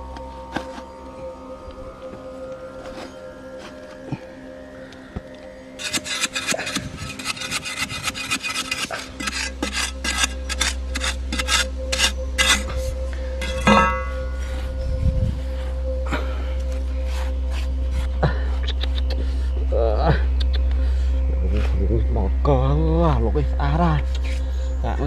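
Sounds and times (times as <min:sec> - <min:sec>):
steady low hum: 0:00.0 - 0:25.0
soil scraping in a hole: 0:05.8 - 0:13.7.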